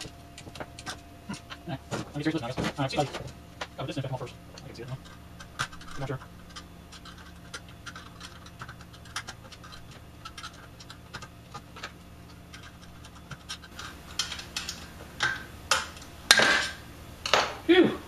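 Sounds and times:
metal parts scraping and rattling: 0:04.0 - 0:17.4.

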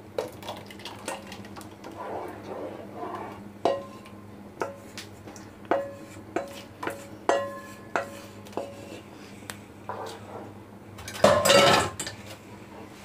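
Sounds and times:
wooden spatula knocking metal pot: 0:05.7 - 0:08.7.

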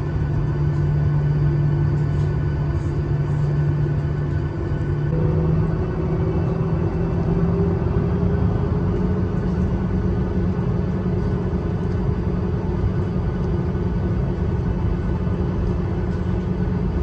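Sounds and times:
jet engines rumbling in cabin: 0:00.0 - 0:17.0.

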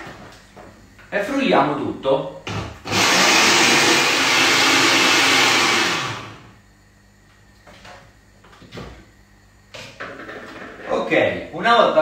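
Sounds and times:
blender running: 0:02.8 - 0:06.6.

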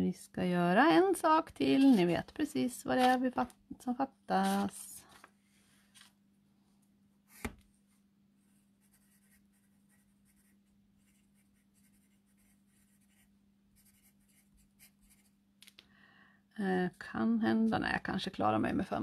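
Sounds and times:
pencil scratching on paper: 0:08.8 - 0:15.4.

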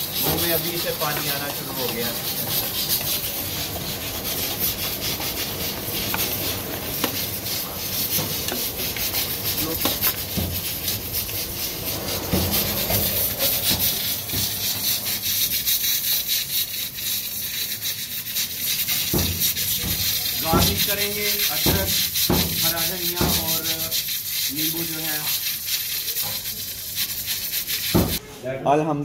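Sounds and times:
metal spatula scraping a pan: 0:00.0 - 0:28.2
curry sizzling and bubbling: 0:00.0 - 0:28.3.

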